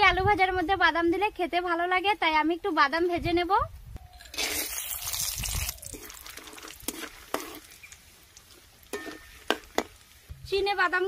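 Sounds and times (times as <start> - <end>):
peanuts frying in hot oil: 4.3 - 10.6.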